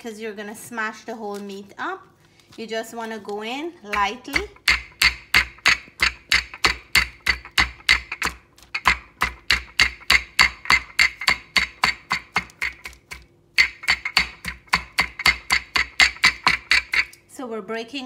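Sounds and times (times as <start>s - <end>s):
rolling pin pounding meat: 3.9s - 17.2s.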